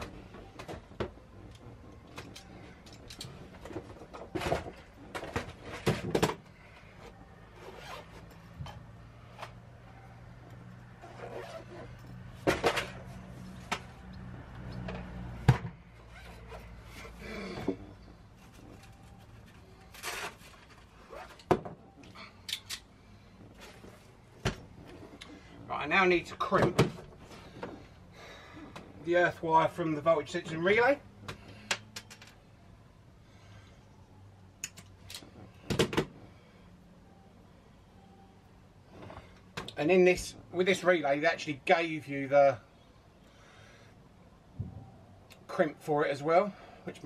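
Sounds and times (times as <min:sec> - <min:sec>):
rustling of tools and parts: 0:00.0 - 0:09.7, 0:10.3 - 0:32.5.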